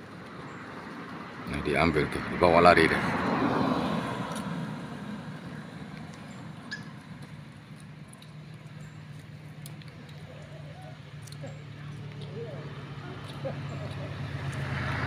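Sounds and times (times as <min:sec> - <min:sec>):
low engine hum: 0:00.0 - 0:15.0
vehicle passing: 0:00.0 - 0:15.0
faint clicks: 0:05.9 - 0:12.4
short high squeaks: 0:06.7 - 0:07.0.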